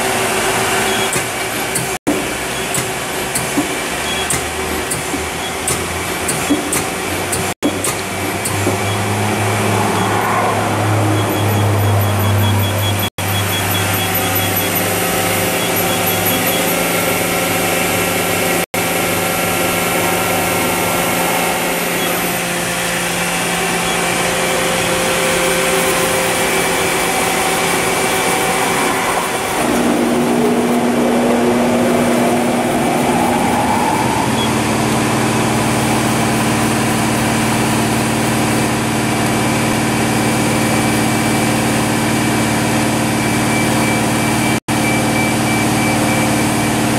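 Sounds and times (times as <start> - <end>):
machine hum: 8.1 - 46.9
motor whine rising: 8.7 - 39.8.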